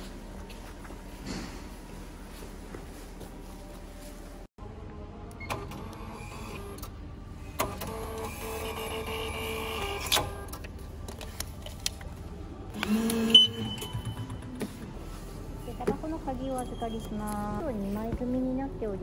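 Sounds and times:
short beep: 13.3 - 14.4.

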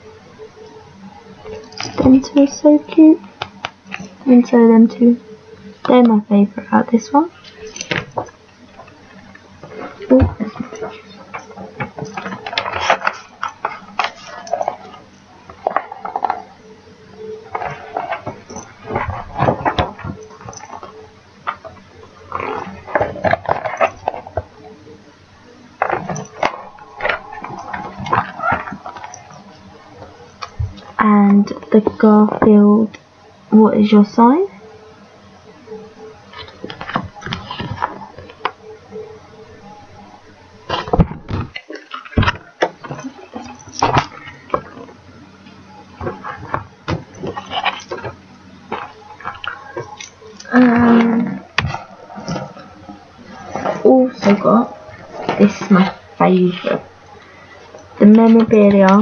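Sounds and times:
paper rustling: 7.4 - 16.5, 17.5 - 24.5, 25.8 - 32.4, 36.3 - 38.5, 46.0 - 51.0.

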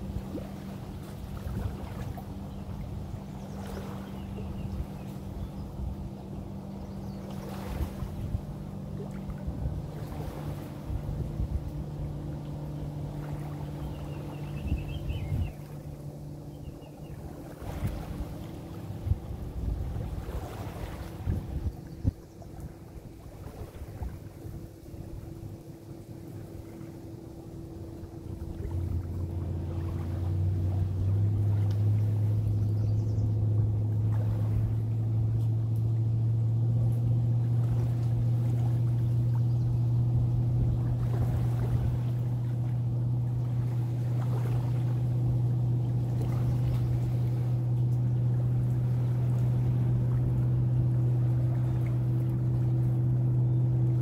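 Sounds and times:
motorboat engine drone: 0.0 - 54.0.

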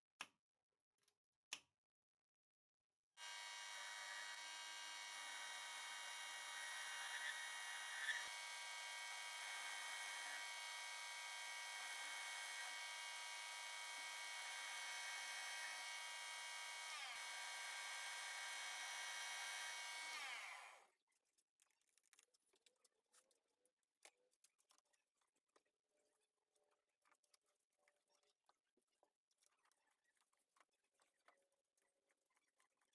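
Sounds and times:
metal lathe whine: 3.2 - 20.8
faint clicks and taps: 21.2 - 32.9.

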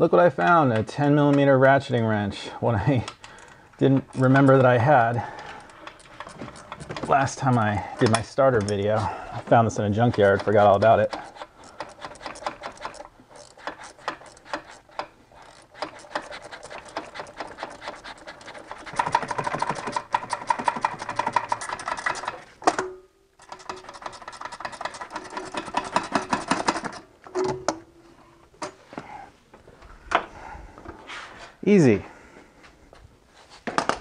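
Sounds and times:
ratchet wrench clicking: 10.2 - 22.2.

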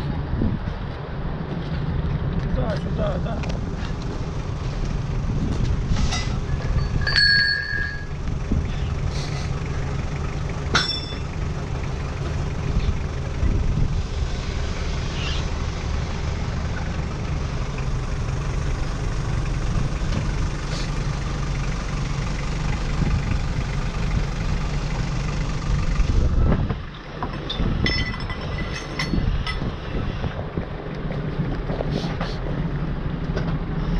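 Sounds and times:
boat engine idling: 2.6 - 13.8, 14.9 - 27.3
brief squeak: 15.1 - 15.4.

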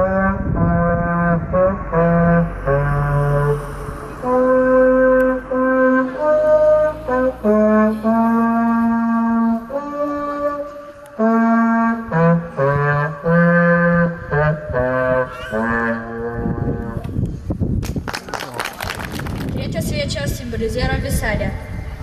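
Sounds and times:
trombone playing slow melody: 0.0 - 17.0.

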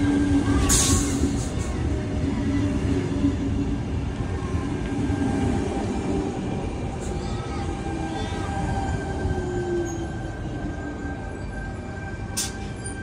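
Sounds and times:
electric train rolling past: 0.0 - 13.0.

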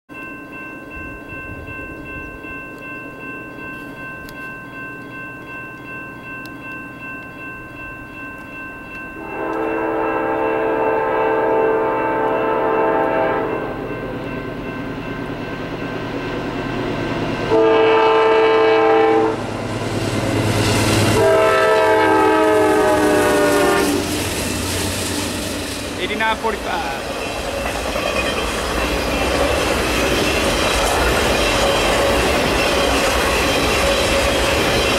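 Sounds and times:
crossing bell ringing: 0.1 - 34.9
locomotive horn blasts: 9.2 - 13.8, 17.5 - 19.5, 21.1 - 24.1.

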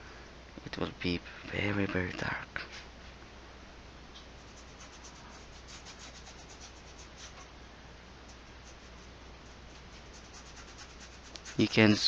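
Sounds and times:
paintbrush scrubbing on canvas: 4.4 - 7.5, 9.8 - 12.0.

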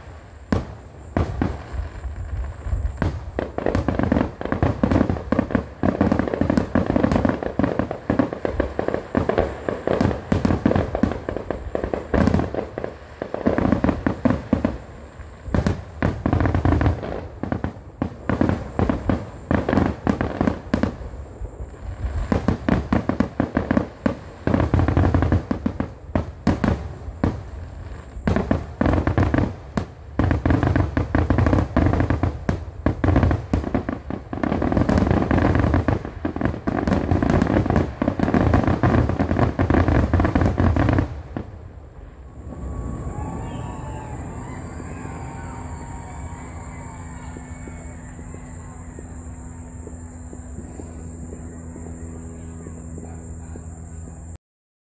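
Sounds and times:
fireworks bangs and crackling: 0.0 - 54.4.

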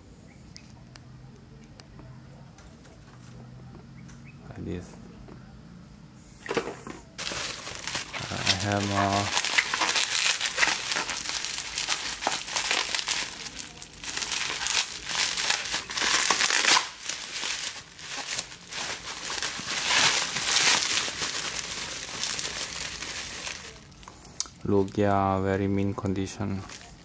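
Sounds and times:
bubble wrap crinkling: 7.2 - 25.0, 26.4 - 27.0.

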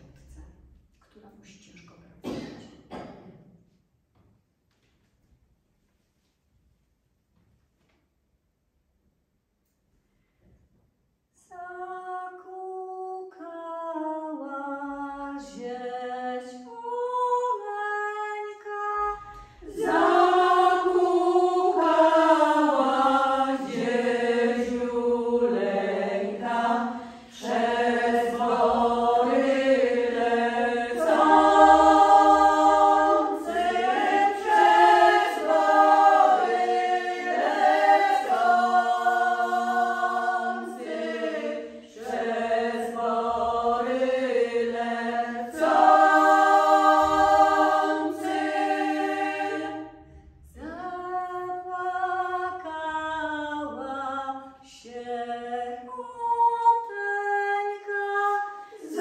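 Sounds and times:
women singing a cappella: 11.4 - 59.0
singers breathing: 26.9 - 27.4.

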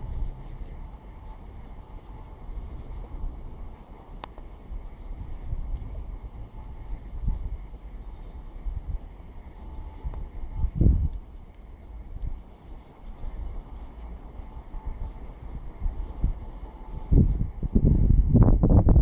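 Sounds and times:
small birds chirping: 0.0 - 18.3
wind gusts on microphone: 0.0 - 19.0.

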